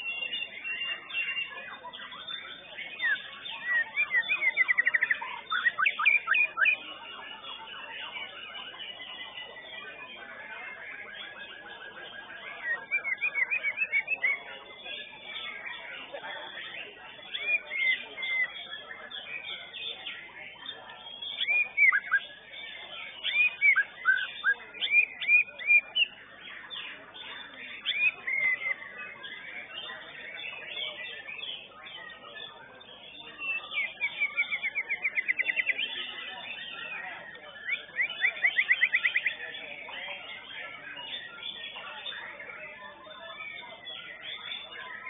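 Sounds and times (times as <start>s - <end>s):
bird singing whistled phrases: 2.1s - 6.8s, 12.5s - 14.4s, 17.3s - 18.6s, 21.1s - 22.4s, 23.1s - 26.1s, 26.7s - 29.8s, 32.4s - 36.9s, 37.5s - 39.4s.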